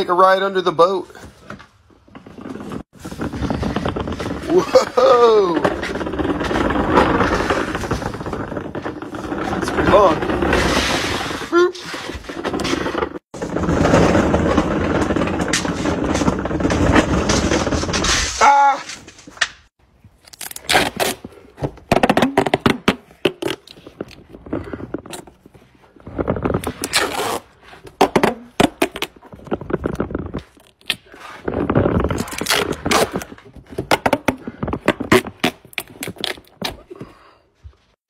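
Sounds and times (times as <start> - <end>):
duct tape ripping: 20.2 - 22.8, 26.2 - 36.8.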